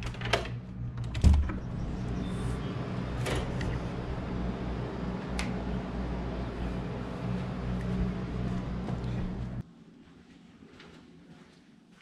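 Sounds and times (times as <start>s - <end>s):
outdoor background noise: 0.0s - 12.0s
door thumping open: 1.0s - 1.8s.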